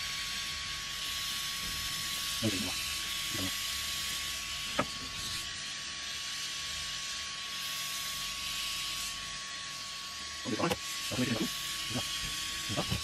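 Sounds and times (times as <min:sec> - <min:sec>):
blowtorch hissing: 0:00.0 - 0:13.0.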